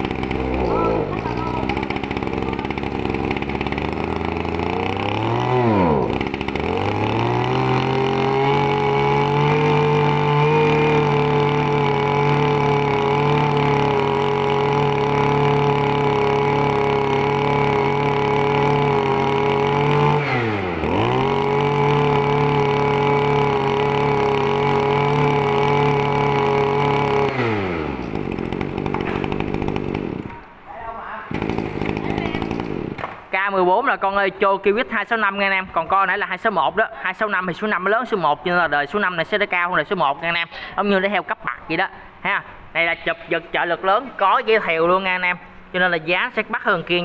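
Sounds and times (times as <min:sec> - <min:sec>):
brush cutter engine at high revs: 0:00.0 - 0:30.4, 0:31.3 - 0:33.1.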